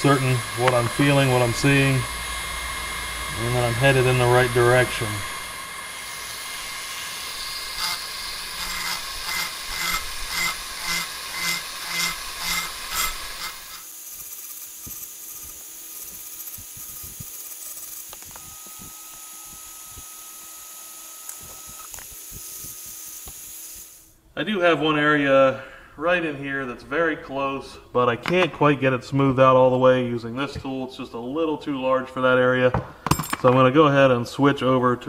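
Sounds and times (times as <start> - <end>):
rotary tool whining: 0.0 - 24.2.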